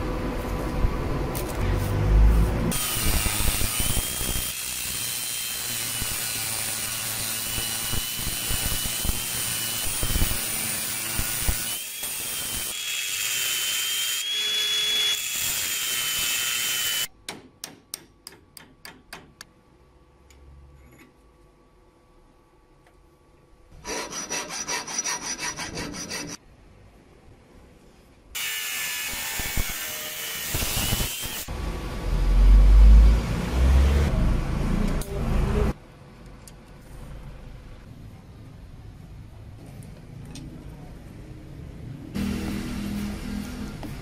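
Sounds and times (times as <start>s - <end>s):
angle grinder cutting steel: 2.7s - 17.1s, 28.4s - 31.5s.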